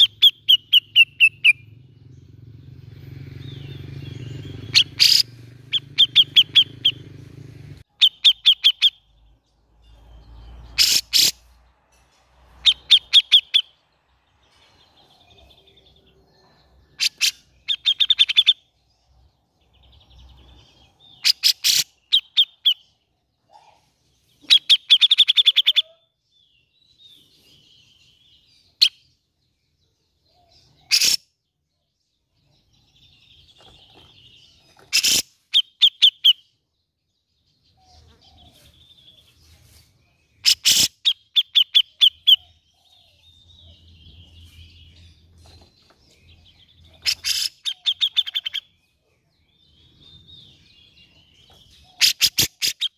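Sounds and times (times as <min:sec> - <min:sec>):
bird calling in rapid notes: 0:00.0 - 0:02.4, 0:03.3 - 0:09.1, 0:30.8 - 0:31.2, 0:34.8 - 0:36.5, 0:46.8 - 0:48.7, 0:51.9 - 0:52.9.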